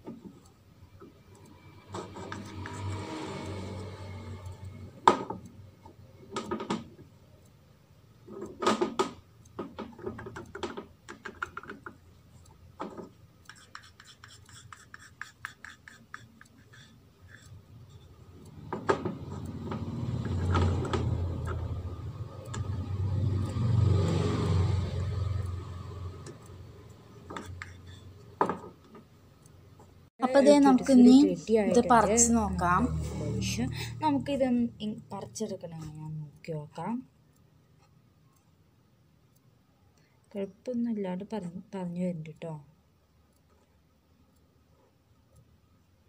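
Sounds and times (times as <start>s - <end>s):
sharp knocks and clicks: 0.0s - 3.2s, 4.6s - 7.1s, 8.2s - 30.0s
fast light ticks: 0.2s - 7.6s, 8.3s - 28.4s, 33.7s - 38.6s.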